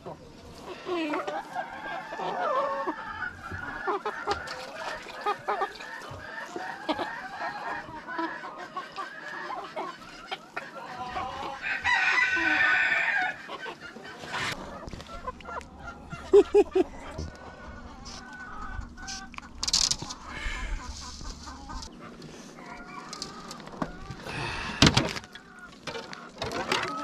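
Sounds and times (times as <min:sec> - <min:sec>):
chickens clucking: 0:00.0 - 0:27.0
rooster crowing: 0:11.4 - 0:13.4.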